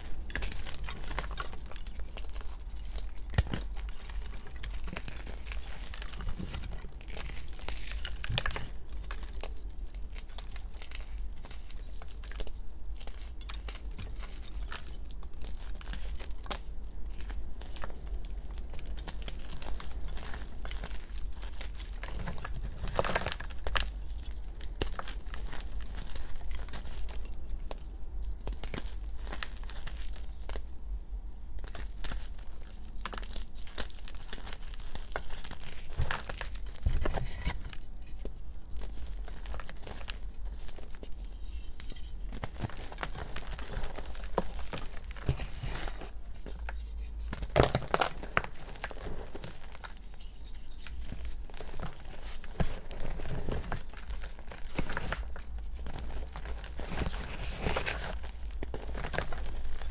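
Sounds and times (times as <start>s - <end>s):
low steady hum: 0.0s - 59.9s.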